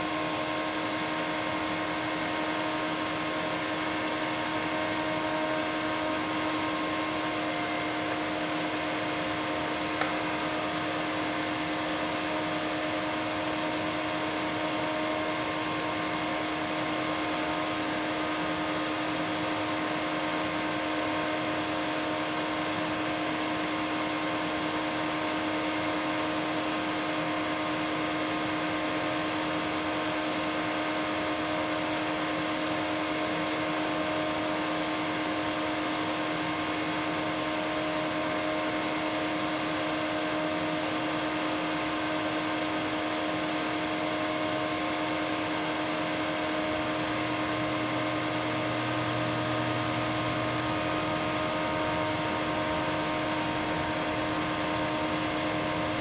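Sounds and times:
water simmering: 0:00.4 - 0:56.0
steady hum: 0:29.0 - 0:56.0.

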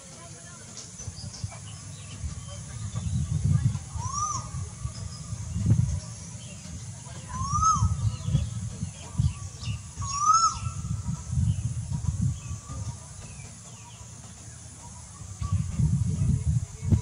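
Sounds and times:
low rumbling noise: 0:00.0 - 0:17.0
bird whistled call: 0:01.1 - 0:14.2.

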